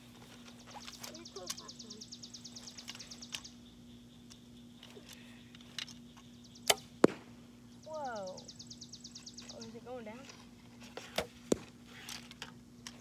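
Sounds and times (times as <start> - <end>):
arrow striking target: 6.7 - 7.4, 11.2 - 11.8.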